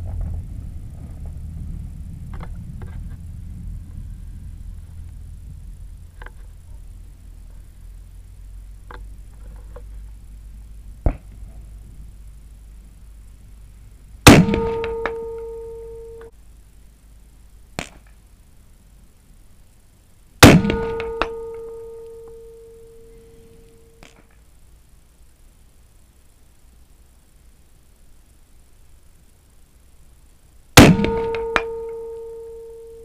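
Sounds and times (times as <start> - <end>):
rifle shots: 14.2 - 15.7, 20.4 - 22.0, 30.8 - 32.1
steel gong target ringing: 14.3 - 16.3, 20.4 - 23.7, 30.8 - 33.0.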